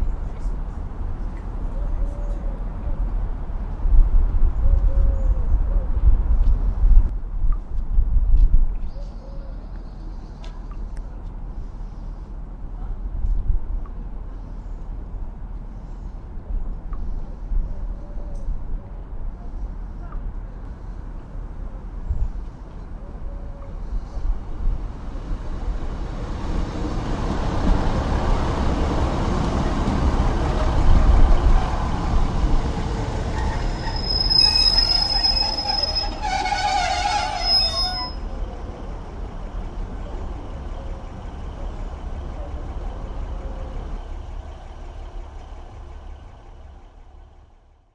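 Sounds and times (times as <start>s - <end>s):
train rumble: 0.0s - 47.9s
train wheels squealing: 33.1s - 38.5s.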